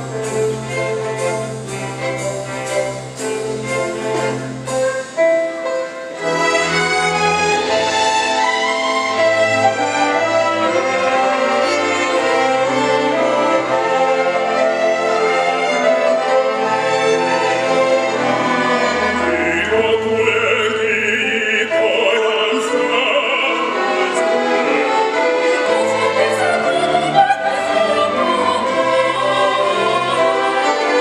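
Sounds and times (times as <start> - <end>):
string orchestra playing: 0.0 - 31.0
operatic singing voices: 17.0 - 31.0.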